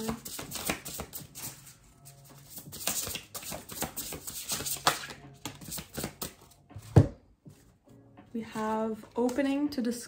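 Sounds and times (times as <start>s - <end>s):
cards being shuffled: 0.0s - 7.6s.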